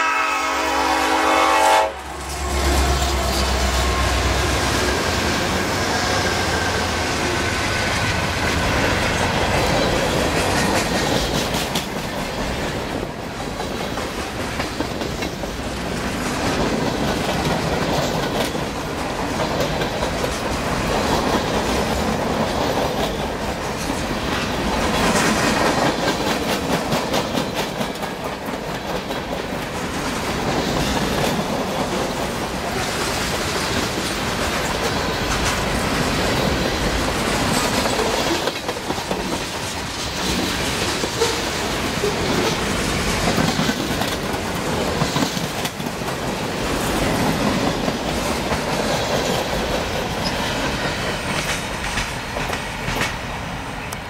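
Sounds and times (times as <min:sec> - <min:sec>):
steel wheels rolling on rail: 0:00.8 - 0:54.0
wheels clacking over rail joints: 0:02.3 - 0:53.4.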